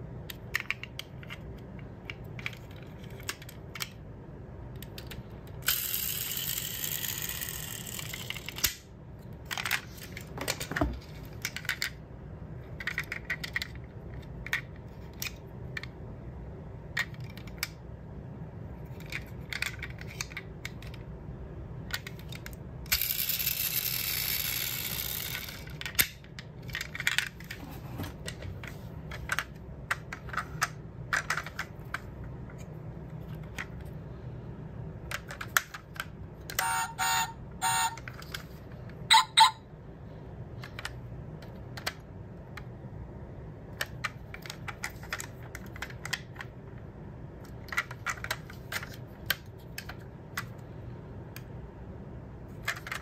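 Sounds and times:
rustling noise: 27.4s - 29.3s.

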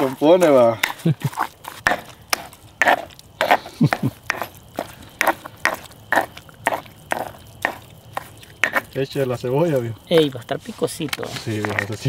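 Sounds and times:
stone pestle grinding in mortar: 0.0s - 9.0s, 11.3s - 12.0s.

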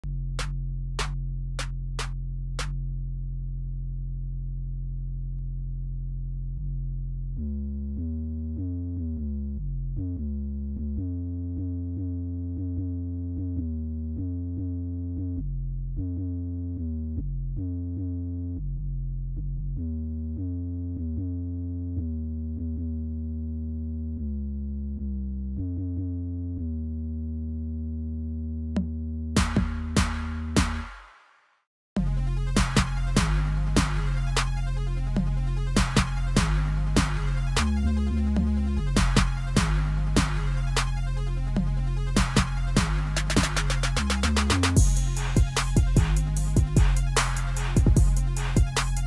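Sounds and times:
low held synthesizer chord: 32.0s - 43.9s
low synth melody: 32.0s - 49.0s.

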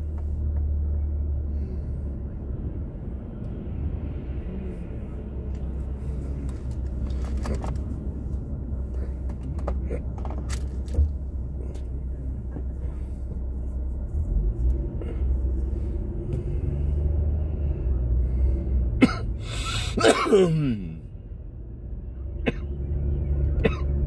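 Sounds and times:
car interior rumble while driving: 0.0s - 24.0s
person sneezing and coughing: 19.0s - 21.0s.

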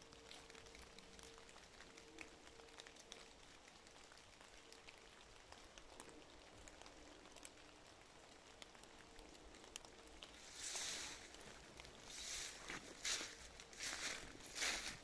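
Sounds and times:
water drips from trees: 0.0s - 15.0s
leaf litter rustle: 9.1s - 15.0s.

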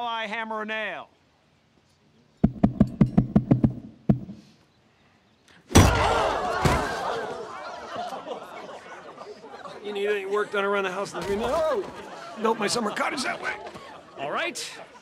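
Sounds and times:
crowd gasping and murmuring: 6.0s - 15.0s.

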